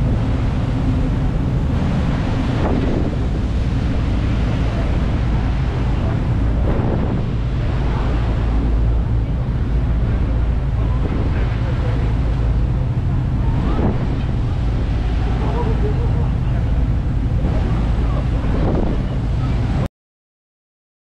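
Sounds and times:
boat engines droning: 0:00.0 - 0:19.9
water rushing past: 0:00.0 - 0:19.9
wind buffeting microphone: 0:00.0 - 0:19.9.

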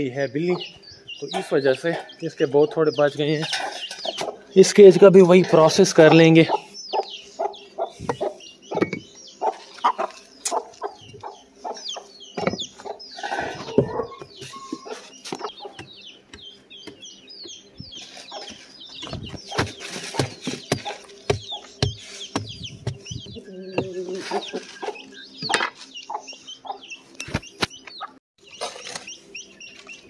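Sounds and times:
chickens clucking: 0:00.0 - 0:30.0
scraping dirt and stones: 0:28.5 - 0:29.2.

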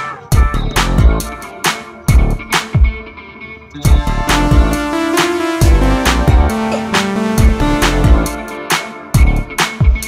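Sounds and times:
electronic music: 0:03.8 - 0:10.0.

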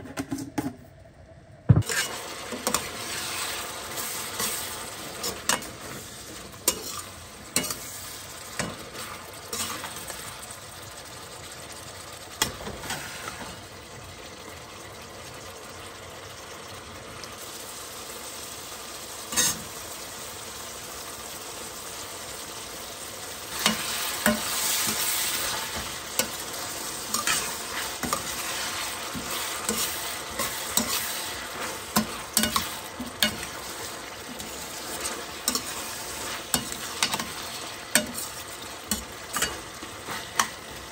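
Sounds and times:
utensil scraping a pan: 0:01.8 - 0:08.7, 0:19.3 - 0:19.7, 0:23.5 - 0:40.6
food sizzling in a hot pan: 0:01.8 - 0:40.9.

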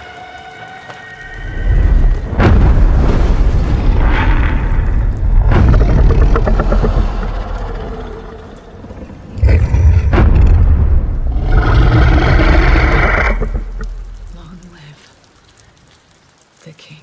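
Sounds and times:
deep rumbling boom: 0:01.5 - 0:08.2, 0:09.4 - 0:14.4.

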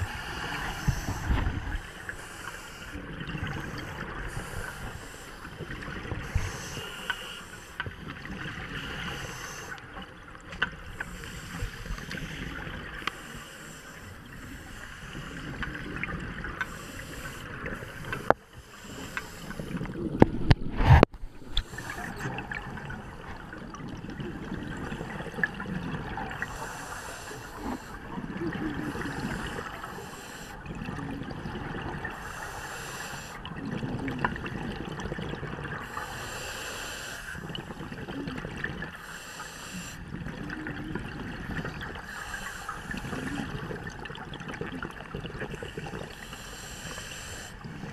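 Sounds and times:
regulator inhale hiss: 0:00.0 - 0:03.0, 0:03.6 - 0:08.0, 0:08.8 - 0:09.8, 0:10.9 - 0:15.6, 0:16.6 - 0:19.9, 0:21.6 - 0:22.2, 0:26.4 - 0:28.1, 0:28.8 - 0:30.6, 0:32.1 - 0:33.4, 0:35.8 - 0:37.8, 0:39.0 - 0:40.1, 0:42.0 - 0:43.5, 0:45.7 - 0:47.9
gurgling exhaled bubbles: 0:02.8 - 0:07.0, 0:19.5 - 0:26.8, 0:27.5 - 0:29.9, 0:30.6 - 0:32.2, 0:33.4 - 0:36.4, 0:37.3 - 0:39.0, 0:40.0 - 0:46.2.

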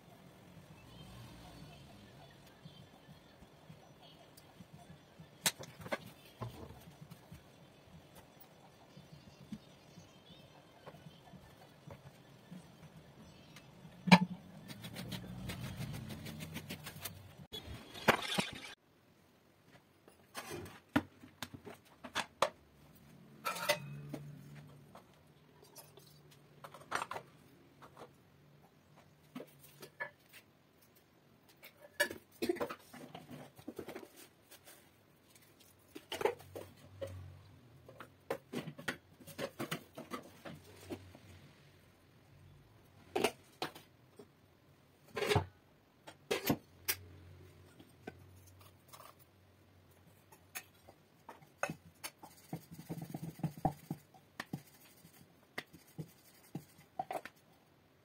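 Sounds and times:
dough worked on wooden board: 0:00.7 - 0:18.8, 0:45.0 - 0:57.7
steel bowls and spoons clinking: 0:23.4 - 0:24.2.

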